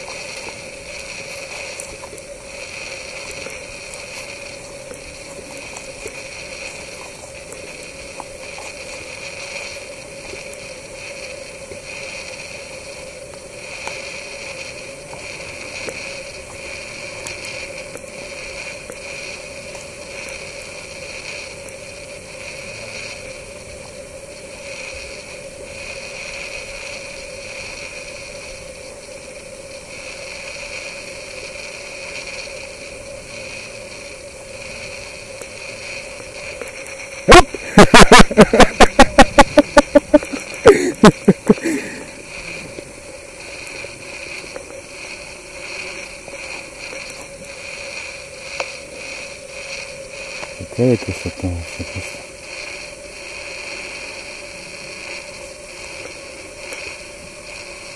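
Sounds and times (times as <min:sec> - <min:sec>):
faint clicks: 0:00.0 - 0:21.8, 0:34.3 - 0:37.2, 0:39.5 - 0:50.6
insect chorus high drone: 0:00.0 - 0:57.9.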